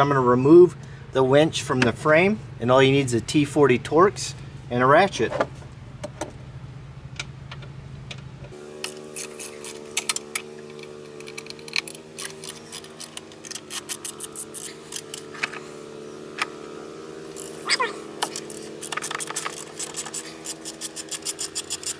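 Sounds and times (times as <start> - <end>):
ratchet clicking: 8.8 - 15.6, 17.3 - 21.9.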